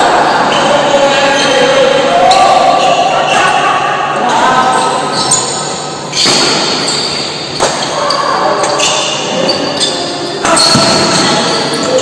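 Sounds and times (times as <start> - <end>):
shoes squeaking on court: 4.7 - 12.0
racket hitting shuttlecock: 6.2 - 8.0.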